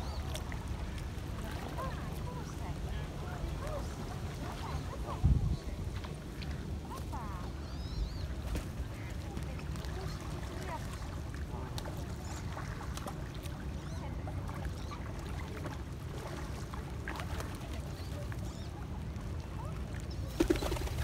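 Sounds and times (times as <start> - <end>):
bird flapping wings: 20.3 - 21.0.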